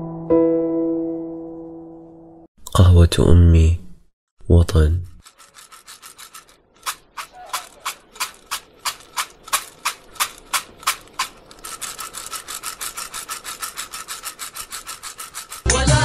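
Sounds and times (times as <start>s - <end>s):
coffee beans ground by hand: 5.2s - 15.9s.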